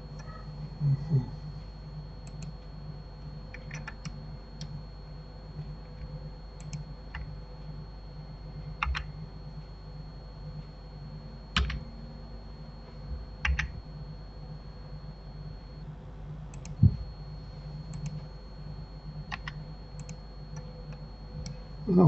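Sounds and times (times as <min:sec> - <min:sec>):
low steady hum: 0:00.0 - 0:22.0
short low thump: 0:16.8 - 0:17.1.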